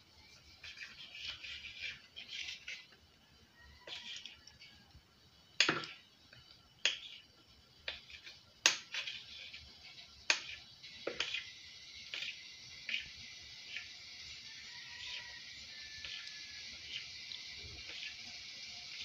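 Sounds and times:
knife clicking on stone countertop: 0:06.8 - 0:07.1.

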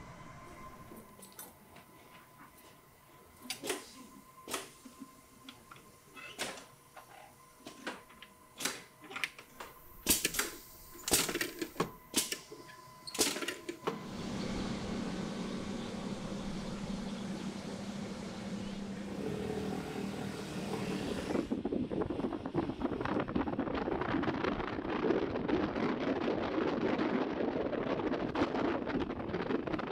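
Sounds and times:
low hum: 0:00.0 - 0:01.5, 0:13.8 - 0:21.8
faint steady whine: 0:00.0 - 0:23.0.

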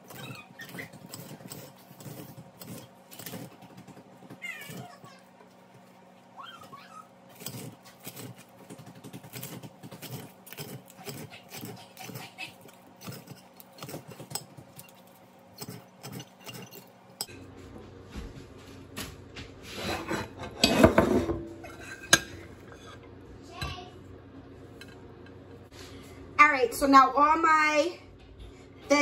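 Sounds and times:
knife chopping on plate: 0:07.4 - 0:16.8
dishes clattering and scraping: 0:07.4 - 0:17.4, 0:19.6 - 0:23.8.

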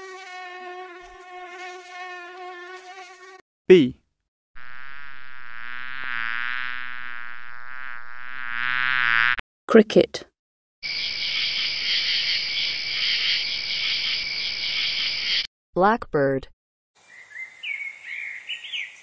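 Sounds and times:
bee buzzing: 0:00.0 - 0:03.4, 0:04.6 - 0:09.4
cricket trilling: 0:10.8 - 0:15.5.

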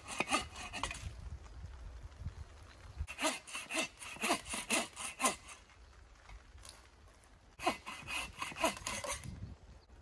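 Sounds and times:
bow saw cutting wood: 0:00.0 - 0:01.0, 0:03.1 - 0:05.7, 0:07.6 - 0:09.3.

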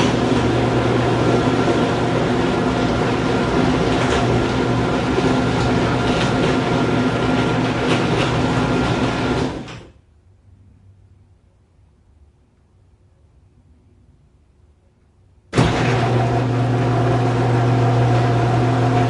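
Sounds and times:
garage door motor humming: 0:00.0 - 0:10.0, 0:15.5 - 0:19.0.

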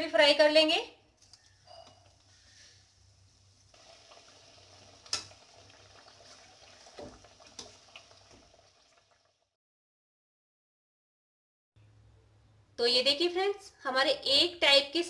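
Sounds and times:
food deep-frying sizzle: 0:02.0 - 0:09.6.

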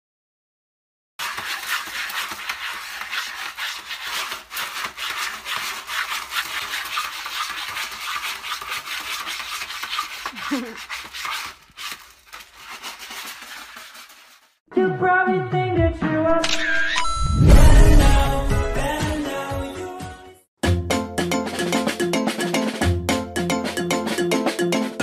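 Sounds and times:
cat scratching in litter tray: 0:01.2 - 0:14.6.

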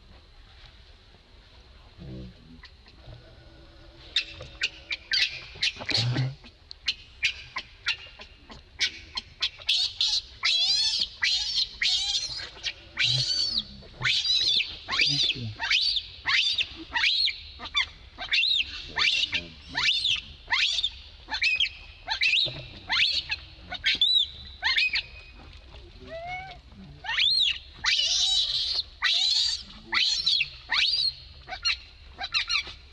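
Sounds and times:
baby monkey crying: 0:09.6 - 0:25.0, 0:27.0 - 0:32.7.

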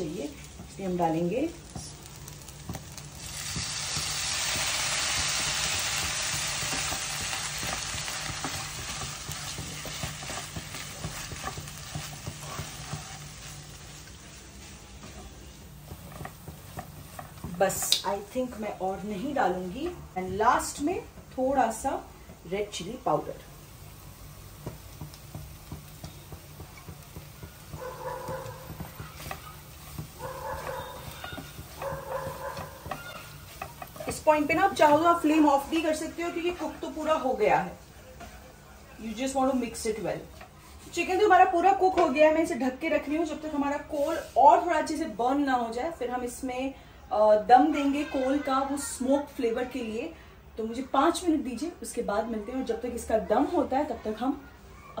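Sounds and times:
cream sizzling in hot pan: 0:00.0 - 0:19.6, 0:20.6 - 0:42.0
wooden spatula scraping pan: 0:06.4 - 0:18.6, 0:26.0 - 0:36.1.

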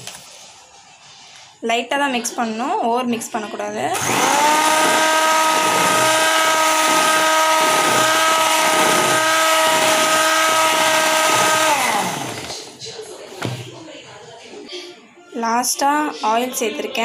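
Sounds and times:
electric hand mixer whining: 0:03.9 - 0:12.8.

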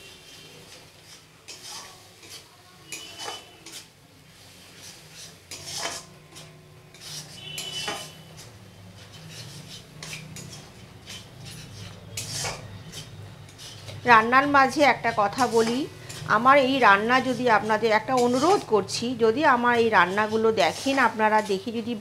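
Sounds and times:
metal spatula scraping a pan: 0:00.0 - 0:22.0
spatula ringing against pan: 0:02.2 - 0:03.8, 0:07.4 - 0:08.2.

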